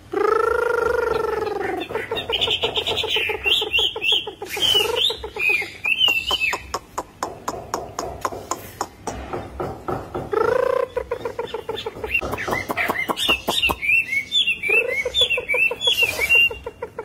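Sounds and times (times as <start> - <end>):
bird singing whistled phrases: 3.5 - 6.7, 12.2 - 16.6
bird sharp clicking notes: 4.5 - 9.5, 11.7 - 14.0.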